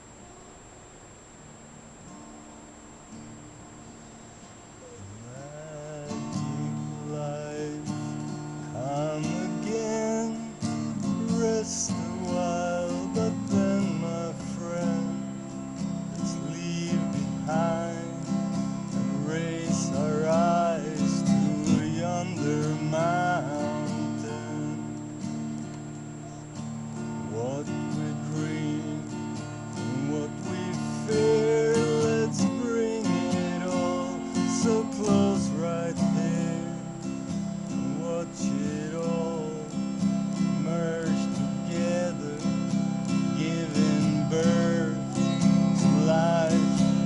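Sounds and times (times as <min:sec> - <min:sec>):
acoustic guitar strumming: 0:00.0 - 0:47.0.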